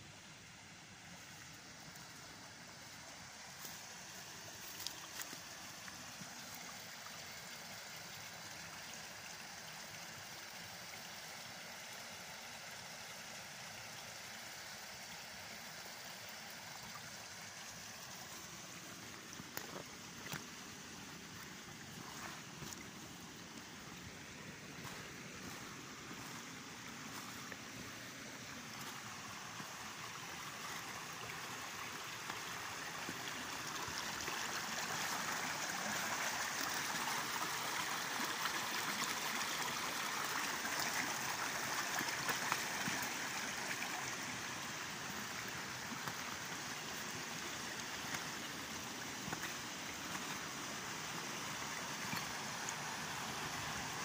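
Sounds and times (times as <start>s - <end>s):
creek water rushing over stones: 0.0s - 54.0s.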